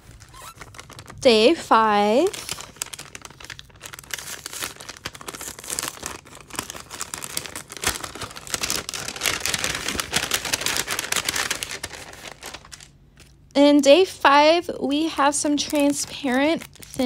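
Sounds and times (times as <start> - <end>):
paper crinkling and rustling: 0.0 - 13.4, 15.4 - 17.0.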